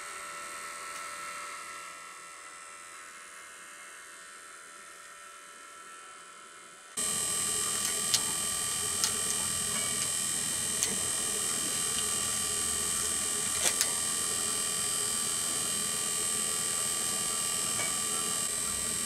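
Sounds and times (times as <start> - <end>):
vacuum pump whining: 7.0 - 19.0.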